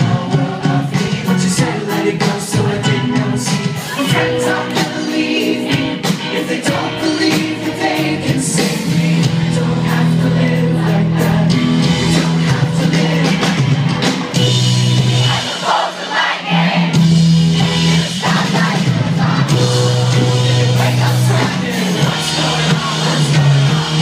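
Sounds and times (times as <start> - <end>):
person singing: 0.0 - 13.6, 19.5 - 24.0
electric guitars: 0.0 - 15.5, 17.0 - 24.0
drums: 0.0 - 24.0
live rock band playing: 0.0 - 24.0.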